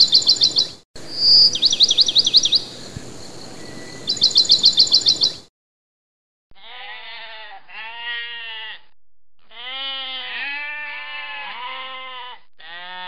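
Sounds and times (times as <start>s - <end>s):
sheep bleating: 6.6s - 13.0s.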